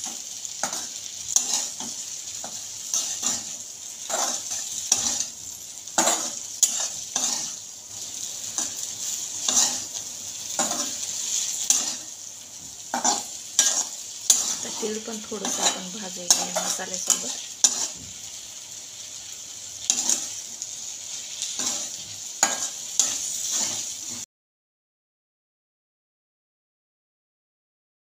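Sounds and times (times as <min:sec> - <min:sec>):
spatula scraping and knocking a pan: 0:00.0 - 0:07.6, 0:08.5 - 0:18.3, 0:19.8 - 0:20.5, 0:21.4 - 0:24.2
oil sizzling: 0:00.0 - 0:24.3.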